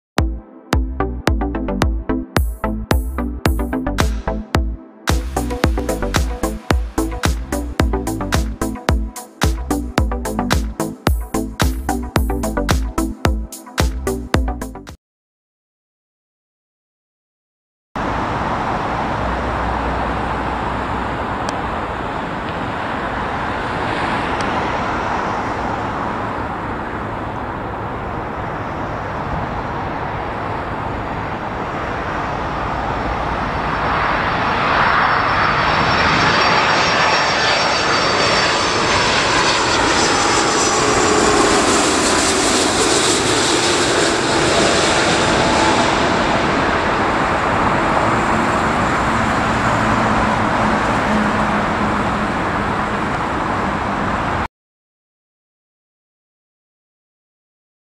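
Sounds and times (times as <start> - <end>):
high jet engine whine: 1.5 - 14.2, 18.0 - 54.5
jet airliner engine noise: 5.2 - 9.5, 18.0 - 54.5.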